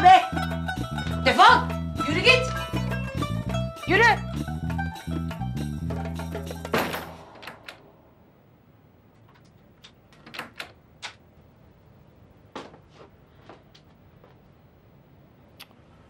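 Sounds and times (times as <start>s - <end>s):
background music: 0.0s - 8.0s
door shutting: 6.7s - 7.9s, 9.2s - 11.2s.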